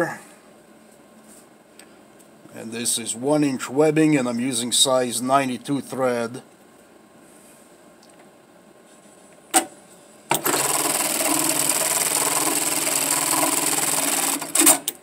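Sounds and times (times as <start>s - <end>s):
sewing machine stitching: 10.3s - 15.0s.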